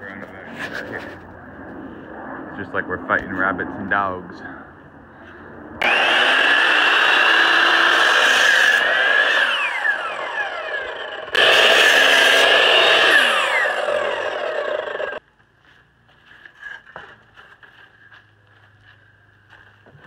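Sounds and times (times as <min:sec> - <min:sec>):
miter saw cutting wood: 0:05.8 - 0:15.2
saw motor winding down: 0:05.8 - 0:15.2.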